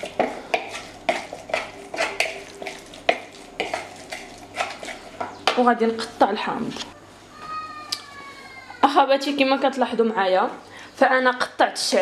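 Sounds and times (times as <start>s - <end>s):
spoon scraping plastic bowl: 0.0s - 6.9s.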